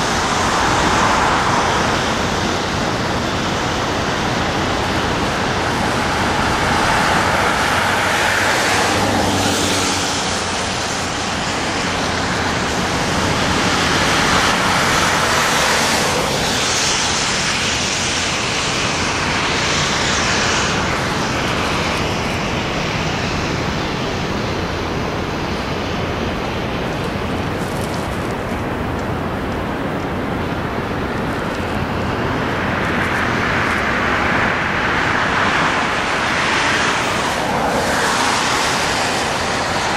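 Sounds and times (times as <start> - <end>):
fast river rushing: 0.0 - 39.9
waterfall roaring: 0.0 - 39.9.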